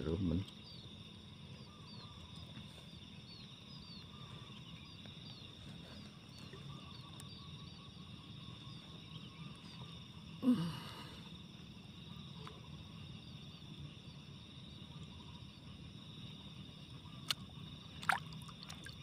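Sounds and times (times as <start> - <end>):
bird chirping: 0.0 - 10.2
high insect drone: 0.0 - 19.0.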